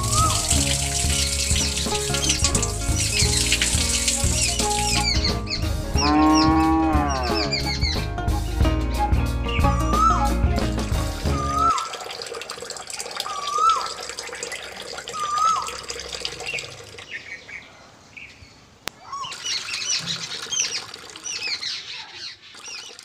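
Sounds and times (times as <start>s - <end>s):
bird whistled call: 0.0s - 0.6s, 9.5s - 10.3s, 11.3s - 11.9s, 13.3s - 13.9s, 15.2s - 15.7s
trickle of water: 0.0s - 5.3s, 11.2s - 17.4s, 19.1s - 23.0s
high bird chirps: 0.0s - 8.0s, 11.3s - 11.9s, 13.2s - 14.0s, 15.2s - 15.8s, 19.0s - 23.0s.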